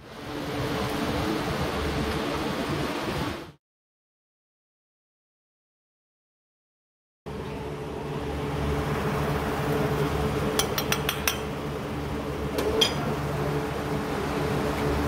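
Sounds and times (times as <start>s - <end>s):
low hum and hiss: 7.3s - 15.0s
spatula and bowl clinking on griddle: 10.5s - 11.6s, 12.6s - 13.1s.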